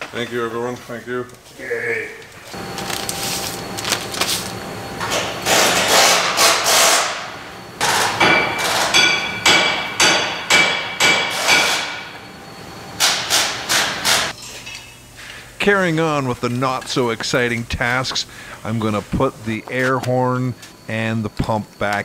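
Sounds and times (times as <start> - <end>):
sharp metallic knocks ringing: 7.8 - 12.1.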